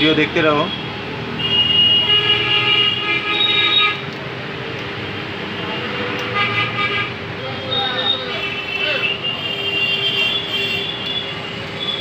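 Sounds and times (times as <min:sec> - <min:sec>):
street noise: 0:00.0 - 0:12.0
vehicle horn: 0:01.4 - 0:04.1, 0:05.6 - 0:07.2, 0:08.0 - 0:12.0.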